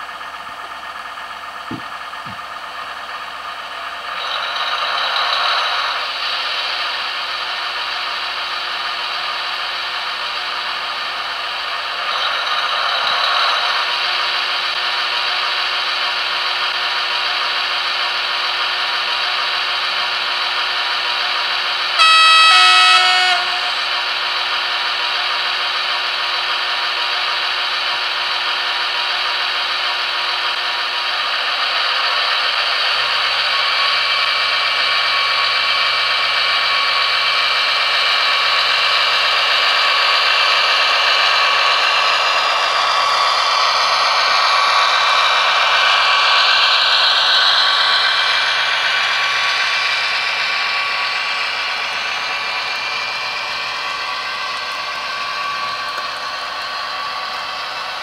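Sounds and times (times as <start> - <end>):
model diesel engine sound: 0.0 - 58.0
two-tone horn: 22.0 - 24.2.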